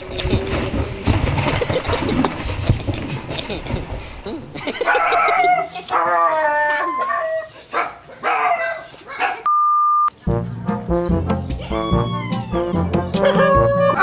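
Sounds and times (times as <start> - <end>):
dog barking and yelping: 4.7 - 9.5, 11.7 - 14.0.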